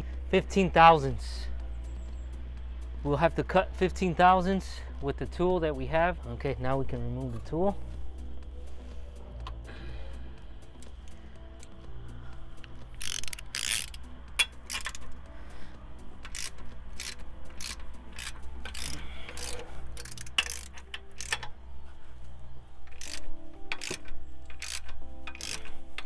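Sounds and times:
ratchet wrench clicking: 12.6 - 15.2, 16.2 - 21.6, 22.8 - 26.0.

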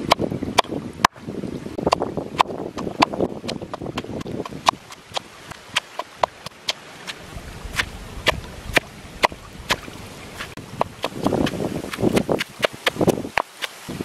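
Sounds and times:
wooden pestle pounding in mortar: 1.9 - 6.6, 10.4 - 13.8.

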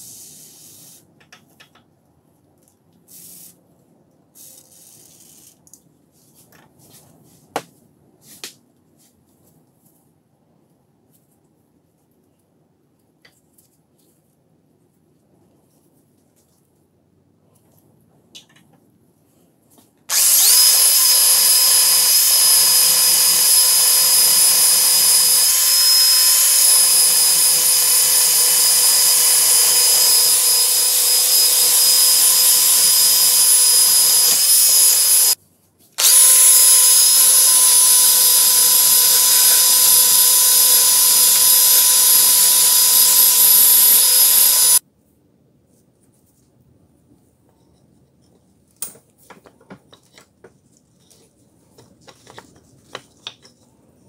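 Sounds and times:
rotary tool wire brush whining: 20.1 - 35.4, 36.0 - 44.8.

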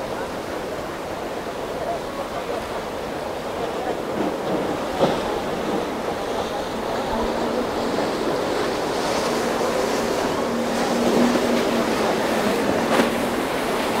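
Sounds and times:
surf and rushing water: 0.0 - 14.0
boat motor droning: 4.8 - 14.0.

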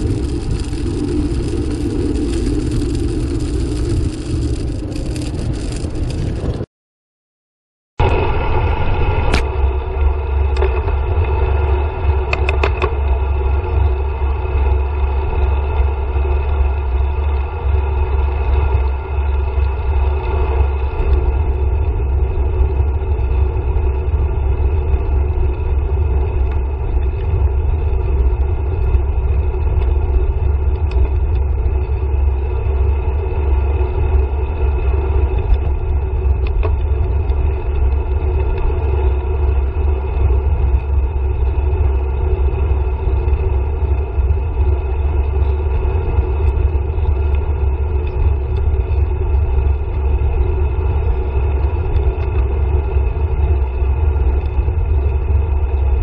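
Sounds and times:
bike road rumble: 0.0 - 6.7, 8.0 - 56.0
wind buffeting microphone: 0.0 - 6.7.

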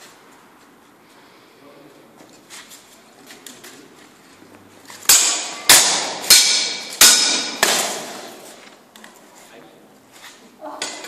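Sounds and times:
steel swords clashing: 5.0 - 8.3.

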